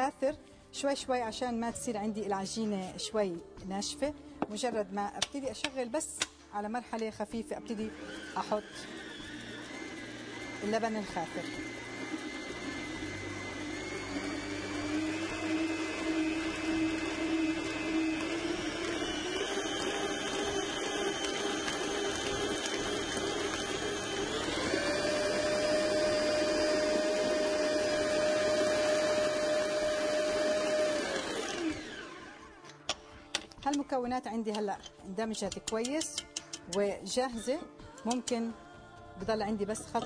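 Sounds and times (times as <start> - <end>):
stand mixer motor whine: 7.7 - 32.7.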